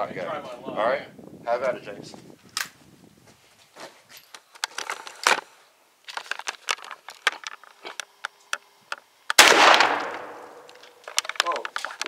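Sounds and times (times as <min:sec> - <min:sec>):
shotgun blast: 0:09.4 - 0:10.6.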